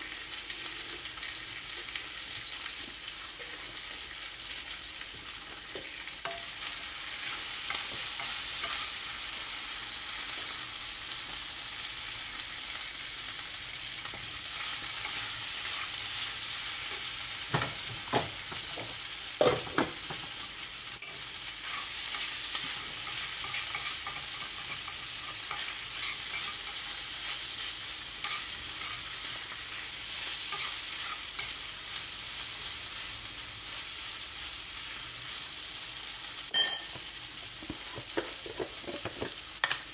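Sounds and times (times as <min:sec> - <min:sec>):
food sizzling in a frying pan: 0:00.0 - 0:39.9
utensil stirring in pan: 0:21.0 - 0:34.0
pot lid clinking: 0:36.5 - 0:37.0.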